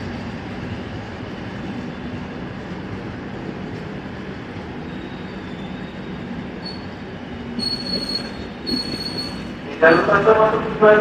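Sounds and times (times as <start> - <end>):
train wheels rumbling on track: 0.0 - 11.0
high wheel squeal: 4.9 - 6.9, 7.6 - 9.6.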